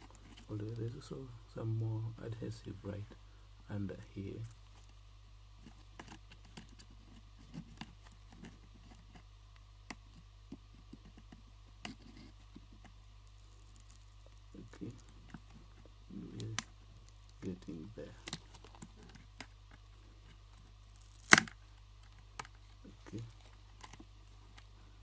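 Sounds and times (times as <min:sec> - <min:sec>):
soft handling rustles: 0:00.0 - 0:03.2, 0:10.0 - 0:25.0.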